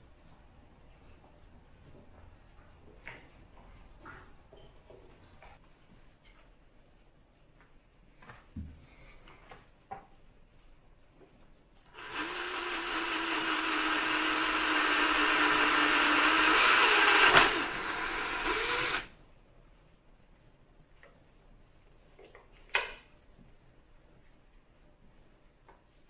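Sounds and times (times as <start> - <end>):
cordless drill drilling into metal: 11.9 - 19.1.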